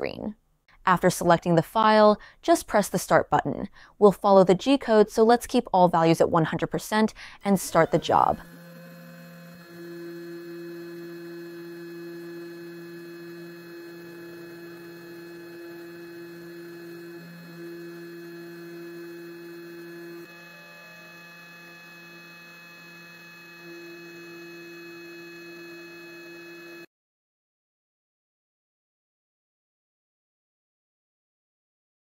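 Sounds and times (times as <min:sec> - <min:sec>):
cnc spindle humming: 0:07.4 - 0:26.9.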